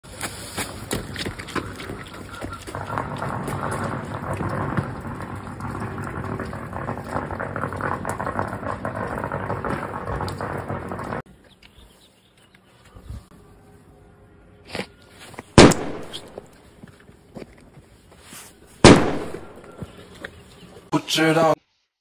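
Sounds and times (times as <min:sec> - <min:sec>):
firecracker fizzing and crackling: 0:03.1 - 0:11.2, 0:15.6 - 0:16.6, 0:18.8 - 0:19.8.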